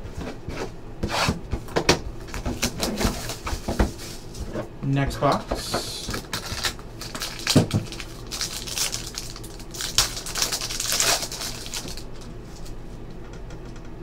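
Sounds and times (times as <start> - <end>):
foil wrapper crinkling and tearing: 2.3 - 3.7, 6.0 - 12.7.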